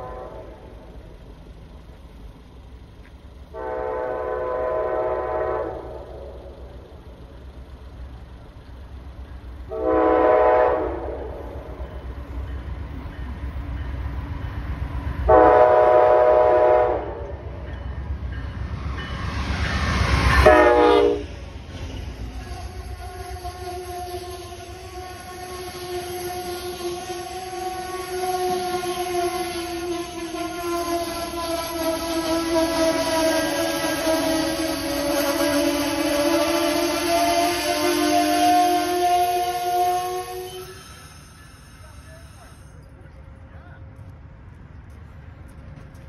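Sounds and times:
train air horn: 0:00.0 - 0:00.8, 0:03.5 - 0:06.5, 0:09.7 - 0:11.8, 0:15.2 - 0:17.5, 0:20.2 - 0:21.3, 0:22.4 - 0:41.2
train rumble: 0:00.0 - 0:46.0.

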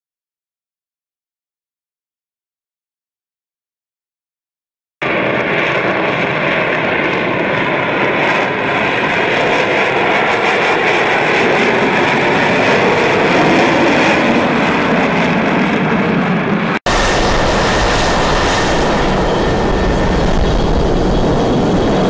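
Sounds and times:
jet engine roar: 0:05.0 - 0:22.0.

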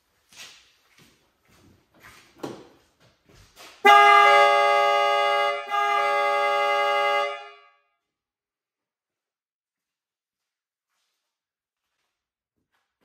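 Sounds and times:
air horn and car horn chord: 0:03.8 - 0:08.2.

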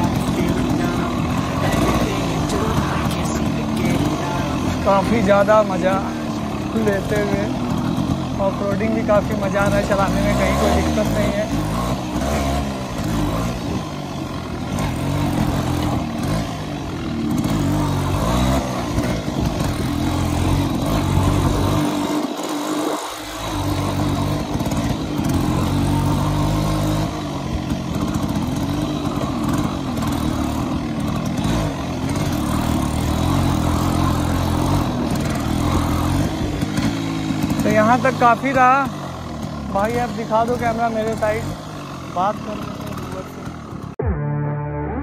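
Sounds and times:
two-stroke motorcycle engine: 0:00.0 - 0:45.0.

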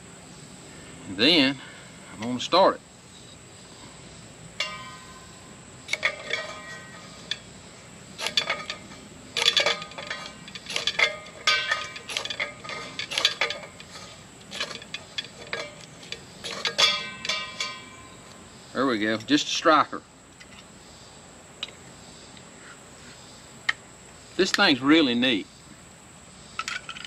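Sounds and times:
ferro rod scraping: 0:04.6 - 0:18.3
metallic clinks: 0:04.6 - 0:18.4.

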